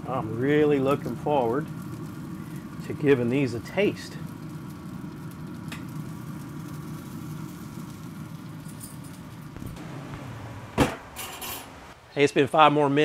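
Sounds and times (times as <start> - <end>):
grill low mechanical hum: 0.0 - 13.0
sharp knock: 9.6 - 11.4.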